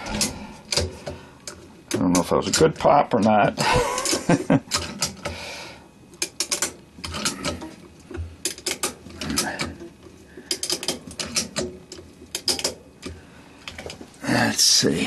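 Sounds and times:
ratchet strap clicking: 10.5s - 13.9s.

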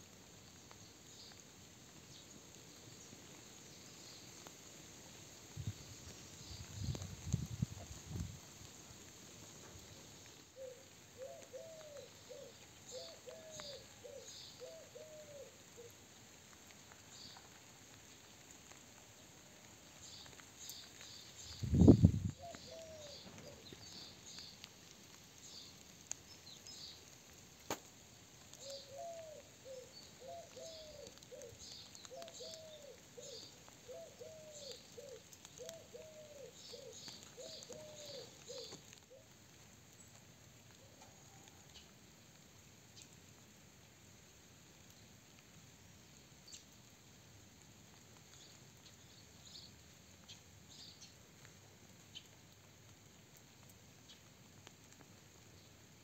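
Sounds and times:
small birds chirping: 0.4s - 8.2s, 9.6s - 40.3s, 45.9s - 46.8s, 48.0s - 52.5s, 53.9s - 56.0s
bird hooting: 10.6s - 15.9s, 22.4s - 23.6s, 28.6s - 39.2s.

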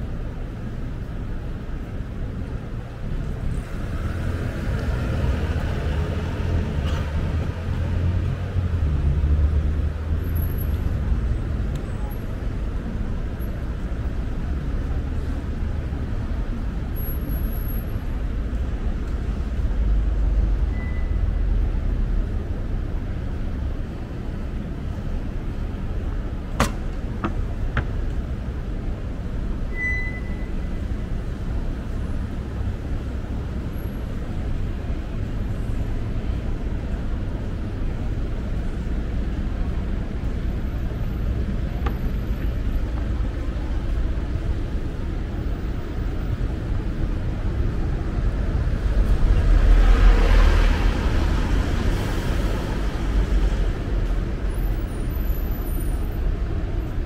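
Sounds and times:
low rumble of passing cars: 0.0s - 57.0s
loud vehicle passing: 48.7s - 53.8s.

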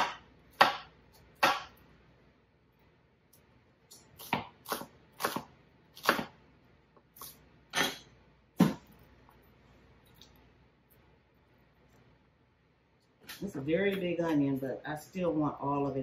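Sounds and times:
knife chopping on wooden board: 0.0s - 1.8s, 4.2s - 6.4s.

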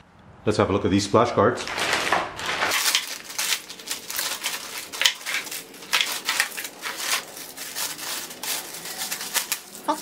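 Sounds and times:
plastic bag crinkling: 1.6s - 10.0s.

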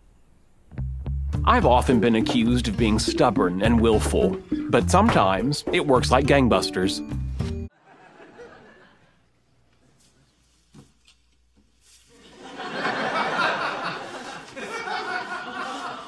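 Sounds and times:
audience laughing: 7.7s - 9.3s, 12.2s - 16.0s.

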